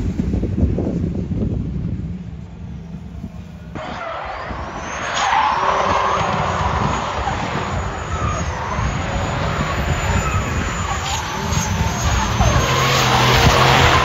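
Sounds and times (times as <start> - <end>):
car engines running hard: 0.0 - 14.0
tyres squealing: 3.8 - 14.0.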